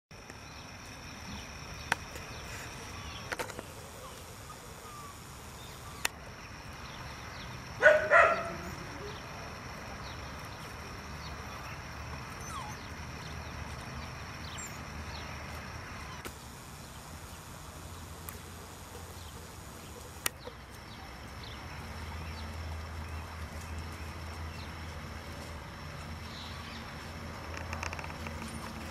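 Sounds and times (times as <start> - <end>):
low steady background noise: 0.1 - 28.9
puppy yipping: 12.4 - 12.9
sharp clicks: 16.2 - 20.4.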